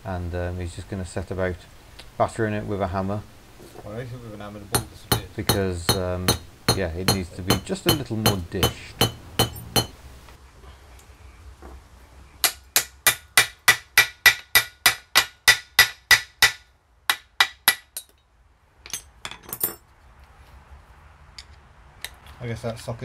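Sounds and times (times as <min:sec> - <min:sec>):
hammer striking steel: 0:04.7 - 0:10.0, 0:12.4 - 0:18.2.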